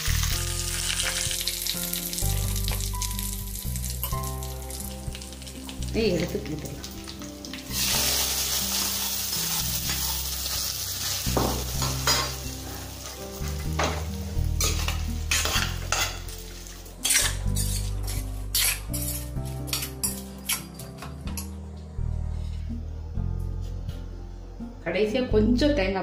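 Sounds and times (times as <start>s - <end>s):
hot oil sizzling: 0.0s - 20.2s
spoon scraping a steel pot: 14.6s - 16.2s, 17.0s - 20.9s.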